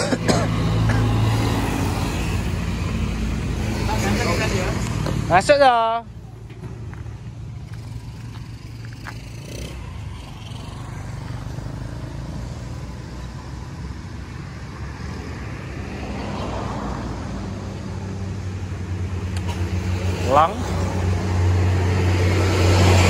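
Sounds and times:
engine running: 0:00.0 - 0:15.7.

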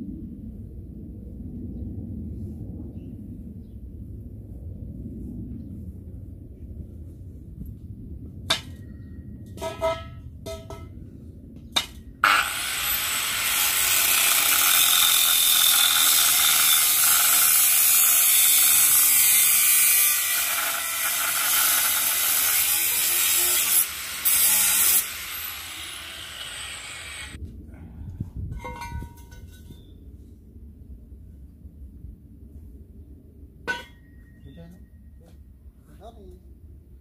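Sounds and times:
angle grinder cutting steel: 0:12.2 - 0:27.4.

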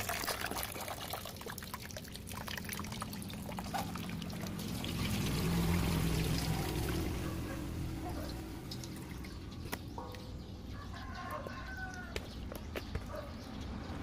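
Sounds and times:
tap water running into basin: 0:00.0 - 0:09.8.

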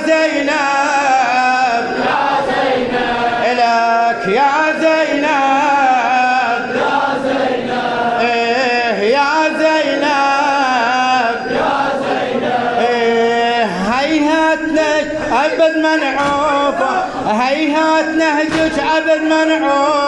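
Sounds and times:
man chanting through loudspeaker: 0:00.0 - 0:20.0.

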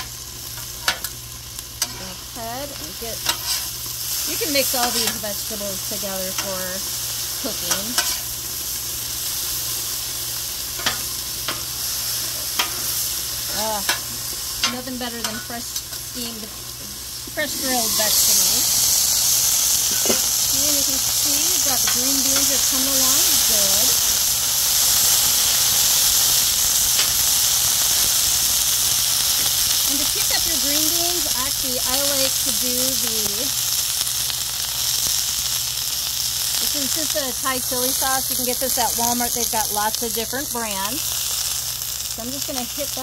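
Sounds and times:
vegetables sizzling on a griddle: 0:00.0 - 0:43.0
metal spatulas scraping: 0:03.2 - 0:03.7, 0:04.8 - 0:05.2, 0:07.7 - 0:08.2
spatula clicking on griddle: 0:04.8 - 0:05.3, 0:07.7 - 0:08.2, 0:21.8 - 0:22.8.

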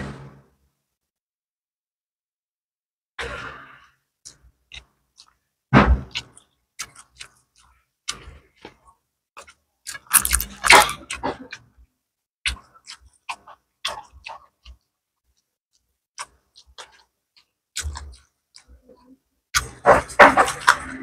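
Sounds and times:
person chewing crunchy food: 0:04.2 - 0:05.4, 0:06.0 - 0:11.8, 0:12.4 - 0:21.0
mouth clicks and smacks: 0:12.4 - 0:19.8.

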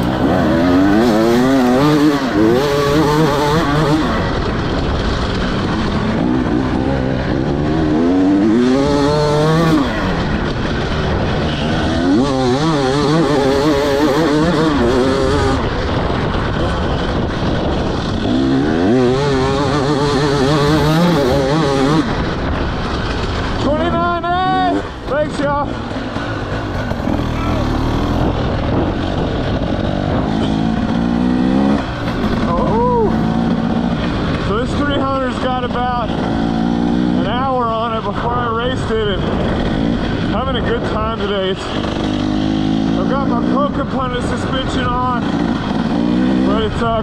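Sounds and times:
dirt bike engine revving: 0:00.0 - 0:47.0.

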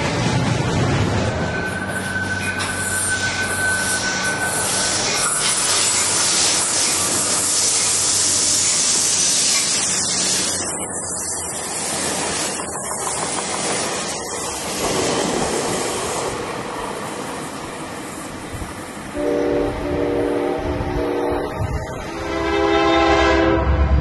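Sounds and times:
approaching train rumble: 0:00.0 - 0:24.0
train wheels rushing on rail: 0:00.0 - 0:24.0.

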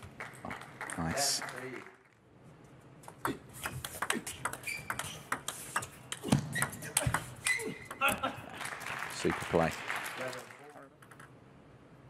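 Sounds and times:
shoe squeaks: 0:04.5 - 0:07.8.

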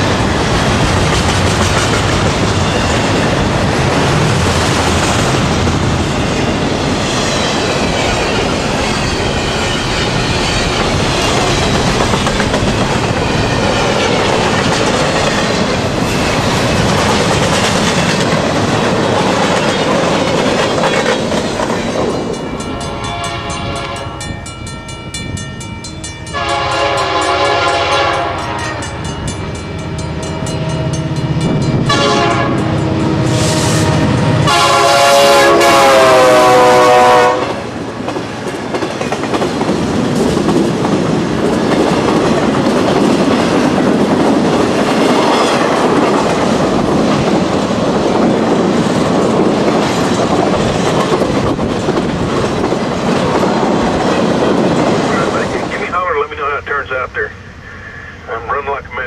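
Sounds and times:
train wheels rumbling on rail: 0:00.0 - 0:59.0
locomotive air horn blasts: 0:22.9 - 0:24.2, 0:26.3 - 0:28.8, 0:31.9 - 0:32.8, 0:34.4 - 0:37.6.

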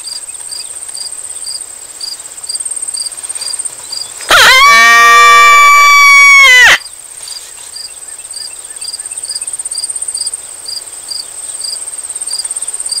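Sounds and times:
cricket chirping: 0:00.0 - 0:04.7, 0:05.3 - 0:13.0
insect trill: 0:00.0 - 0:13.0.

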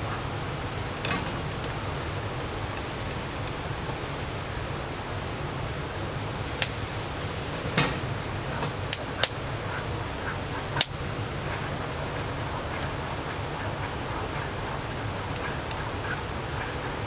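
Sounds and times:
rain hissing: 0:00.0 - 0:17.0
wood fire crackling: 0:00.0 - 0:17.0
sharp fire pops: 0:06.3 - 0:09.8, 0:10.7 - 0:11.8.

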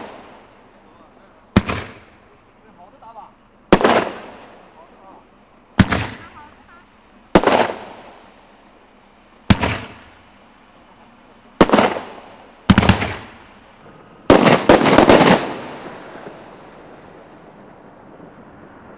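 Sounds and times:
firework bangs echoing: 0:00.0 - 0:00.8, 0:01.5 - 0:02.9, 0:03.7 - 0:08.6, 0:09.4 - 0:10.4, 0:11.6 - 0:18.9.

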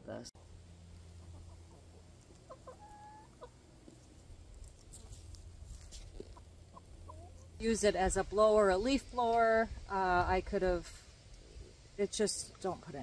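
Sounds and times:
low steady hum: 0:00.0 - 0:13.0
chickens clucking: 0:00.9 - 0:07.6.

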